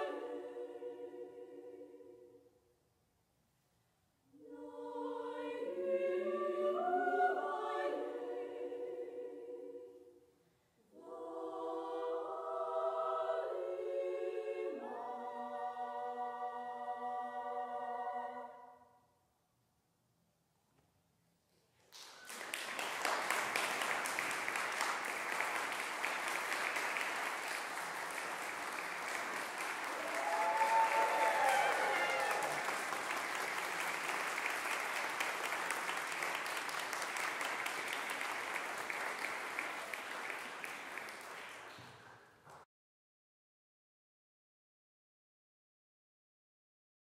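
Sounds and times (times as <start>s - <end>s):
audience applauding: 21.9s - 42.6s
person cheering: 30.0s - 32.8s.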